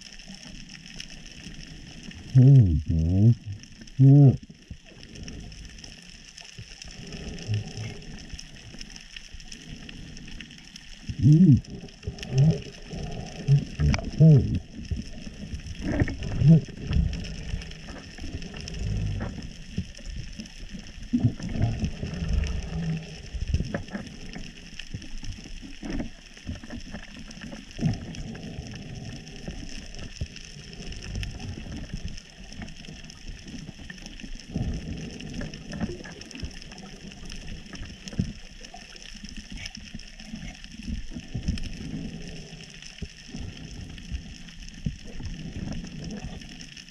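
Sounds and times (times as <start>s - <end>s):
low underwater rumbles and knocks: 10.9s - 38.6s.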